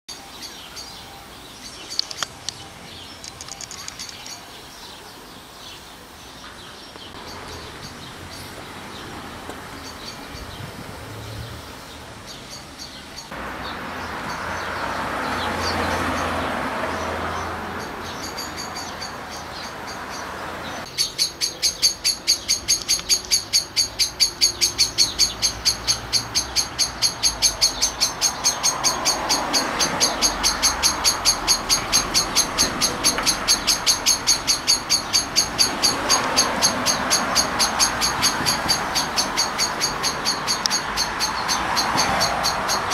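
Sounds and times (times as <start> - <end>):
birds chirping: 0.1 - 42.9
rapid high chirp: 20.8 - 42.9.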